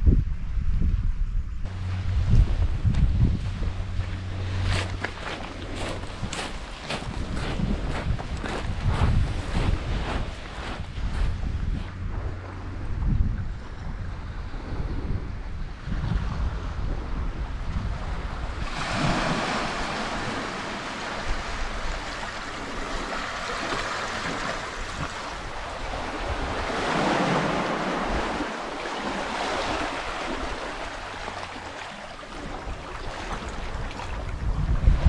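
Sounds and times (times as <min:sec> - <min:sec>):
wind rumbling on microphone: 0:00.0 - 0:35.0
waves washing against rocks: 0:04.5 - 0:11.2, 0:18.6 - 0:34.5.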